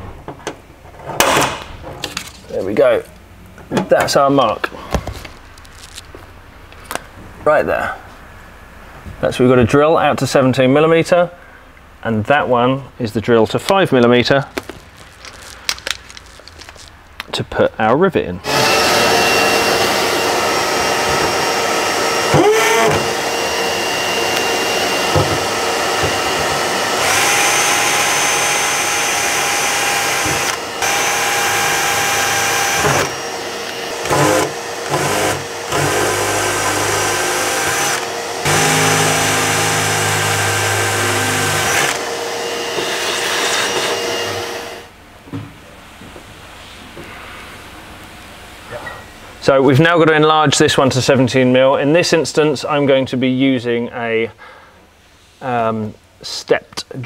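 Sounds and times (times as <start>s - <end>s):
cordless drill drilling steel: 18.4s - 44.9s
vacuum running: 18.4s - 44.9s.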